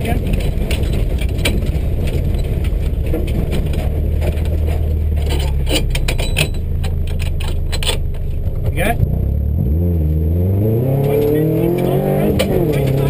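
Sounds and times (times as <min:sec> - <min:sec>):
car engine running at low revs: 0:00.0 - 0:13.0
clicks and knocks: 0:00.2 - 0:08.8.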